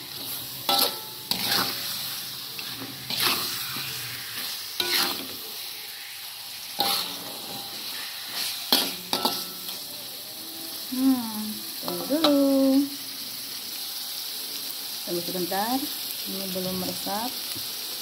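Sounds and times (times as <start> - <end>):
chicken sizzling in a wok: 0.0 - 18.0
metal spatula scraping pan: 0.1 - 9.9.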